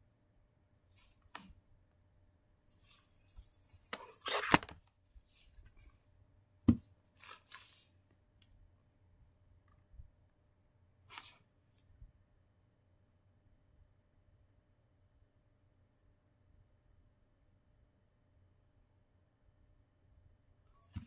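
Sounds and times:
rustles and scrapes of handling: 2.7 - 6.1, 7.1 - 8.0, 11.1 - 11.9.

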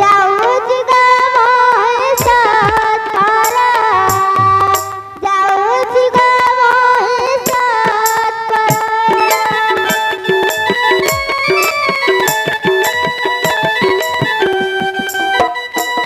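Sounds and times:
sliding melody stage music: 2.2 - 6.4, 8.7 - 16.0
bright cymbal-like strikes: 8.7 - 14.2.

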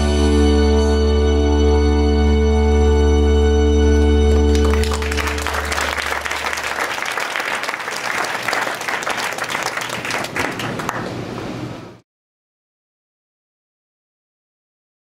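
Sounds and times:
audience applauding: 4.0 - 11.3.

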